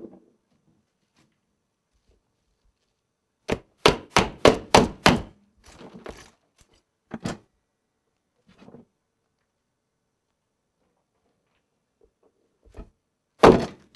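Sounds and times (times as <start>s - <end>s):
knife chopping cabbage: 3.5s - 5.3s.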